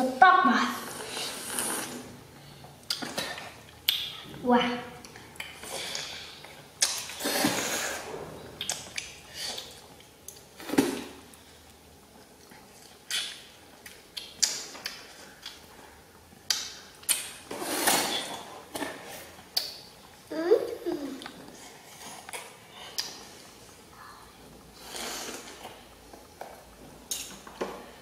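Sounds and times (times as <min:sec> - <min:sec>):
children chewing juicy fruit: 0:00.7 - 0:28.0.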